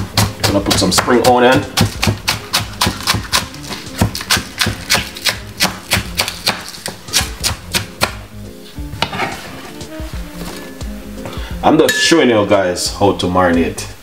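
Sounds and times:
knife chopping on cutting board: 0.0s - 8.2s, 9.0s - 9.6s.

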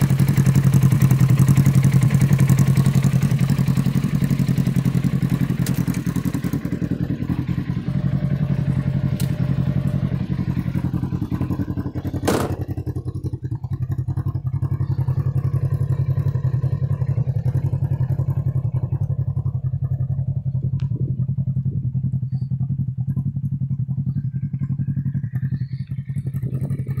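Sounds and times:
engine idling: 0.0s - 27.0s
sharp knock: 12.2s - 12.7s.

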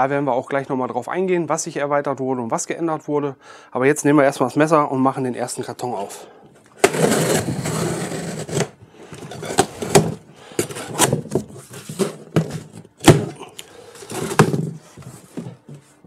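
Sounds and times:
cardboard rustling: 6.8s - 16.0s
cardboard snaps and knocks: 12.4s - 13.4s.

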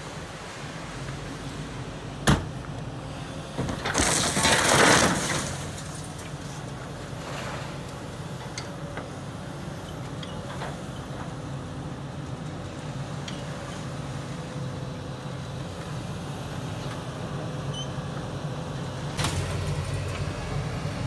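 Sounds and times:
metal and glass crunching: 3.9s - 6.0s
machine low drone: 19.2s - 21.0s.

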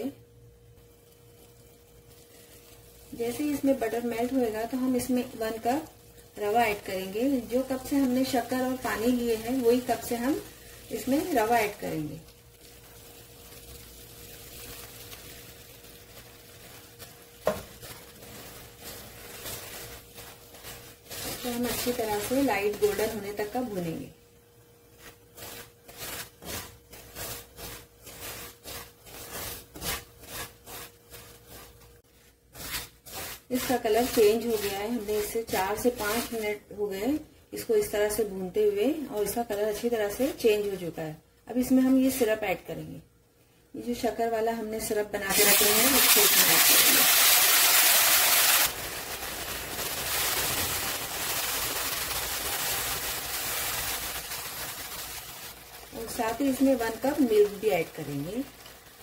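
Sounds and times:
syrup sizzling in hot pan: 0.8s - 35.3s, 45.3s - 59.0s
spatula scraping and stirring in pan: 12.3s - 22.3s, 24.9s - 35.3s.

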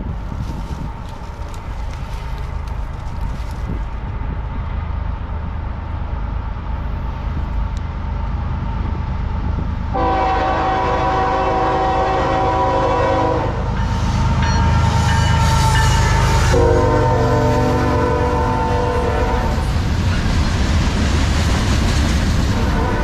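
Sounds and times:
locomotive engine rumble: 0.0s - 23.0s
train wheel noise: 0.0s - 23.0s
locomotive horn blast: 9.9s - 13.8s, 14.5s - 19.8s, 22.6s - 23.0s.

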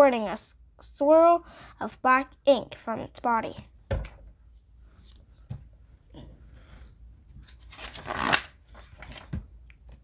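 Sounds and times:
book page turning: 7.4s - 9.4s.

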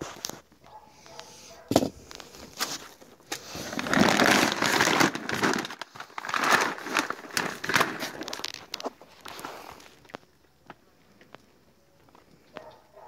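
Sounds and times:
bag of cat food crinkling: 2.0s - 10.3s.

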